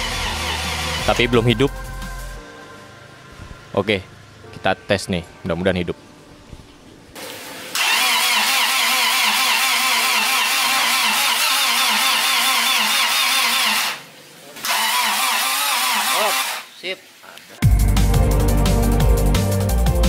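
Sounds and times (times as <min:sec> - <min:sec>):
starter motor cranking engine: 0:00.0 - 0:01.8, 0:07.7 - 0:14.0, 0:14.6 - 0:16.7.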